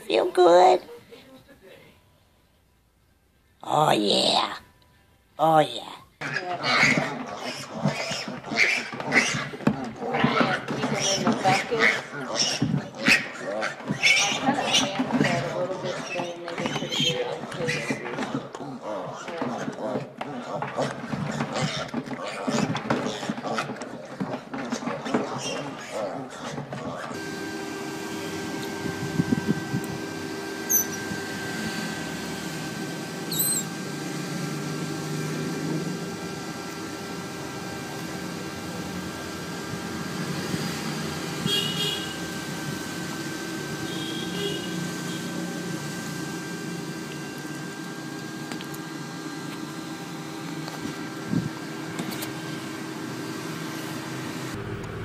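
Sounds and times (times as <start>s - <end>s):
otter squeaking: 6.2s - 27.2s, 30.6s - 32.1s, 33.2s - 33.8s
steady hum: 27.1s - 55.0s.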